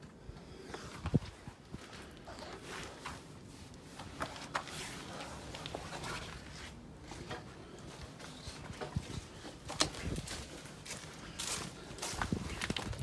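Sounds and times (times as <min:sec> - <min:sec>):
footsteps on dead leaves and twigs: 0:08.3 - 0:13.0.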